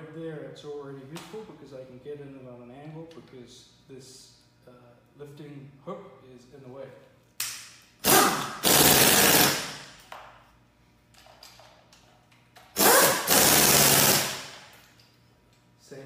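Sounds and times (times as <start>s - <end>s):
impact wrench hammering: 7.4s - 10.3s, 12.6s - 14.9s.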